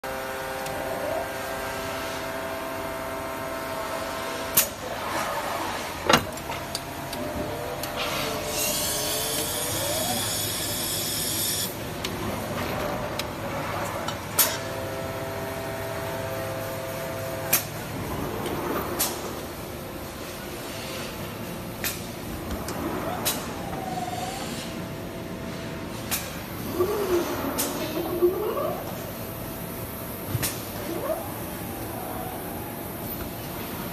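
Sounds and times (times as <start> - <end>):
machine humming: 26.4 - 33.9.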